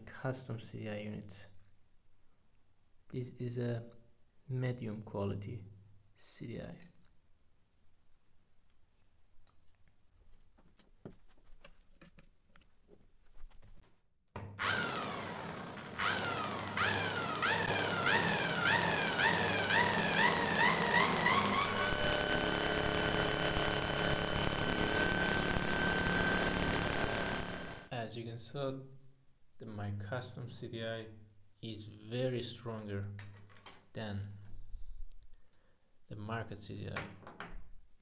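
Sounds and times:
motor whine: 14.6s - 27.9s.

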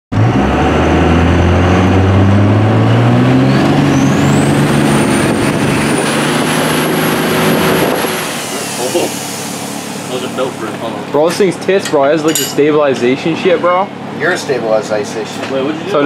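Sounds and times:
diesel truck engine accelerating: 0.1s - 11.8s.

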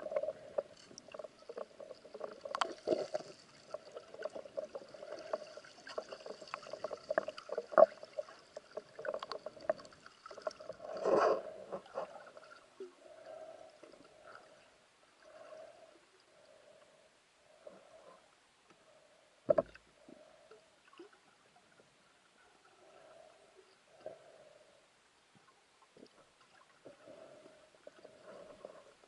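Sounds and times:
underwater clicks and knocks: 0.0s - 3.2s, 19.5s - 19.9s
steady underwater hum: 0.0s - 29.0s.

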